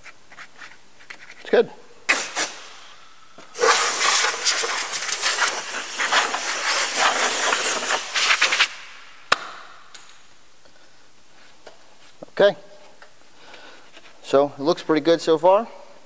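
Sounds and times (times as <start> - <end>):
compressed air blow gun hissing: 2.1 - 9.2.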